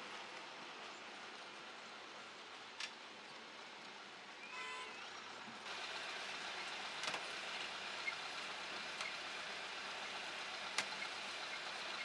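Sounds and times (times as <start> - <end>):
processing machinery noise: 5.0 - 12.0.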